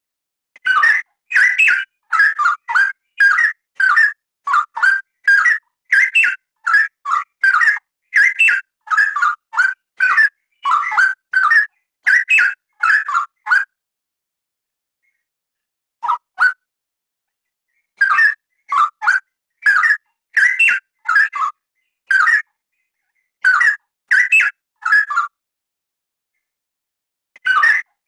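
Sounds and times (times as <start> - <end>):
bird singing whistled phrases: 0.6 - 13.7, 18.0 - 22.5, 23.4 - 25.3.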